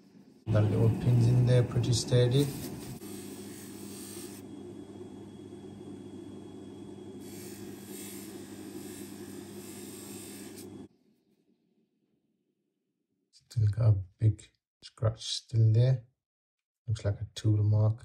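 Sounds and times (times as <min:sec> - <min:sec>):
polishing motor humming: 0:00.0 - 0:10.9.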